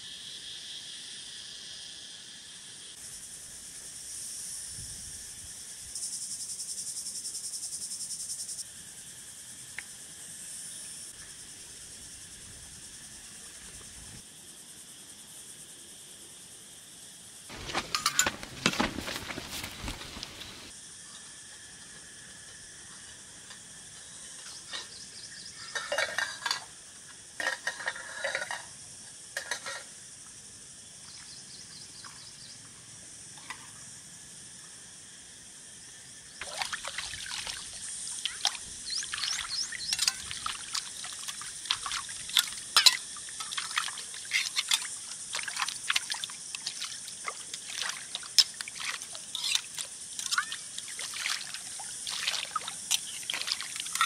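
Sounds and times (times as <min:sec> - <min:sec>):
water splashing: 0:17.5 - 0:20.7, 0:36.4 - 0:54.0
water pouring and trickling: 0:36.4 - 0:54.0.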